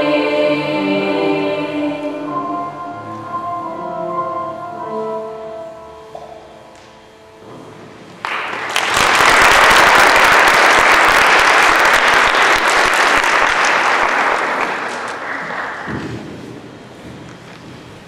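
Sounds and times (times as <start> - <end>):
audience applauding: 8.2 - 15.9.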